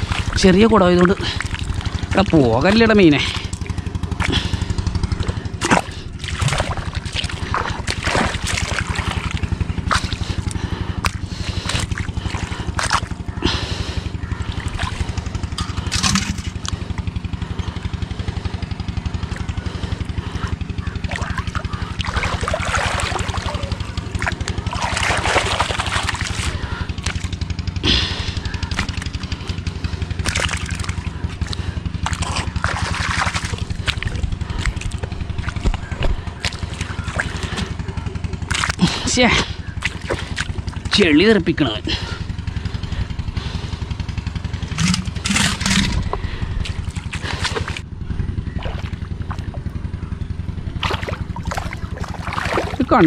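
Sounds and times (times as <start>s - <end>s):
hands splashing in water: 0.0s - 4.6s, 5.2s - 17.1s, 19.2s - 37.8s, 38.4s - 40.9s, 44.6s - 47.8s, 48.6s - 49.6s, 50.8s - 53.0s
low drone: 0.0s - 41.0s, 41.8s - 53.0s.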